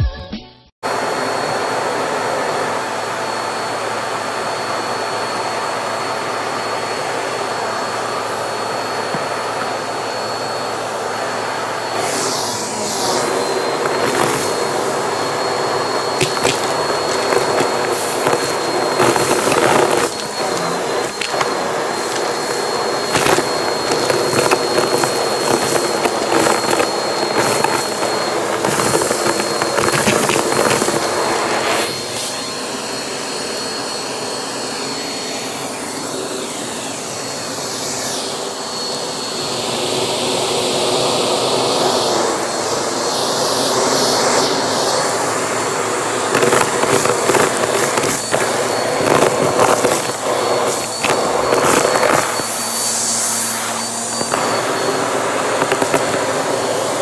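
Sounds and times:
vacuum cleaner running: 0:00.8 - 0:57.0
debris rattling up hose: 0:12.1 - 0:31.9, 0:46.2 - 0:53.2, 0:54.2 - 0:56.4.

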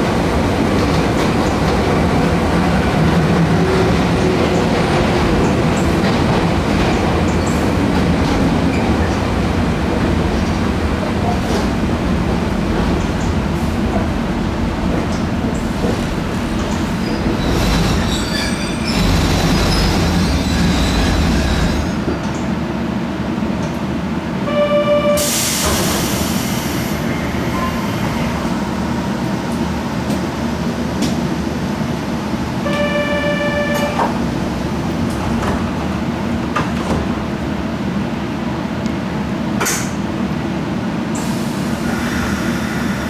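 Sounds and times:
train wheels rumbling: 0:00.0 - 0:24.2
loud hiss of released air: 0:25.2 - 0:27.1, 0:41.2 - 0:43.0.

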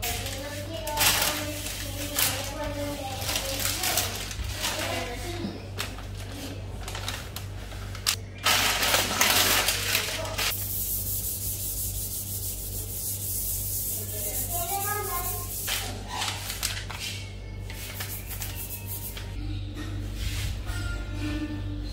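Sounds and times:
steady low hum: 0:10.4 - 0:21.9.

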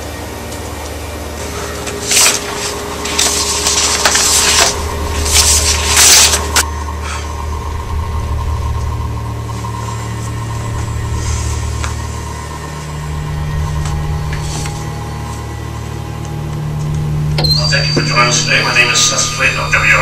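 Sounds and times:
steady low hum: 0:00.0 - 0:20.0
paper rustling: 0:01.5 - 0:06.6.

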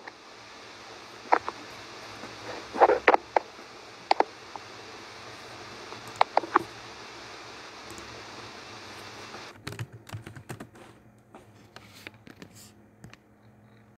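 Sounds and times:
steady hiss: 0:00.0 - 0:09.5.

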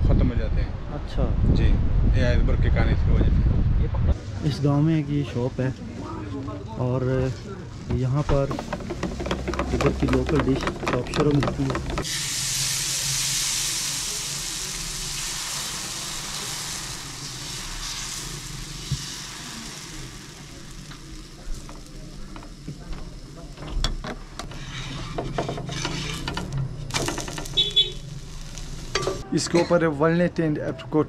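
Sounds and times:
clicks and knocks: 0:07.9 - 0:12.0
food sizzling in a pan: 0:11.9 - 0:29.2.

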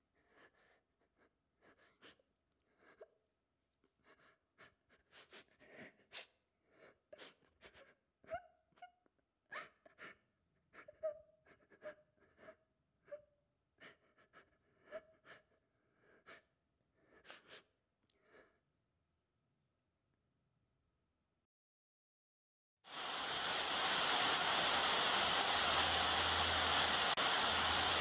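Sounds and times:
person sobbing and sniffling: 0:03.9 - 0:17.8.

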